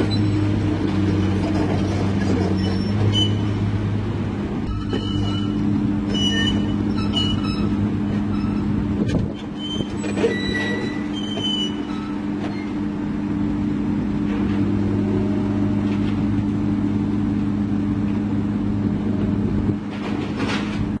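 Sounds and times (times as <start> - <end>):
excavator diesel engine running: 0.0 - 21.0
brief high squeaks: 2.3 - 3.6, 4.7 - 8.7, 9.3 - 12.7.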